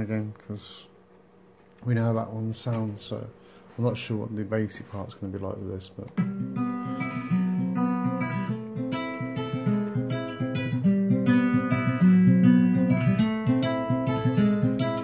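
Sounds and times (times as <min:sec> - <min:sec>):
acoustic guitar picking: 0:06.2 - 0:15.0.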